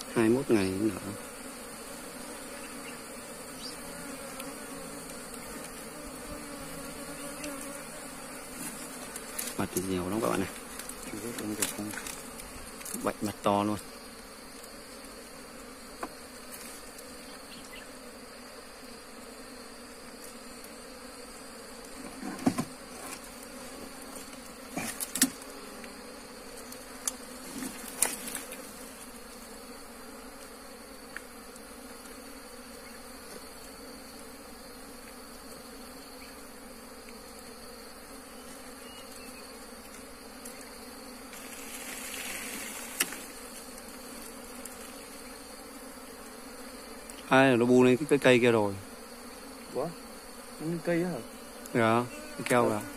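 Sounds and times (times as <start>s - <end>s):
bees buzzing in a swarm: 0.0s - 52.9s.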